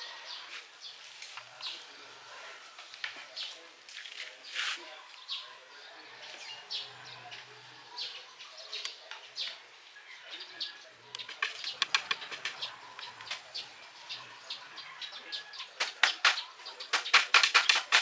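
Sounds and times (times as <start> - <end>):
hammer driving nails into wood: 15.8 - 18.0.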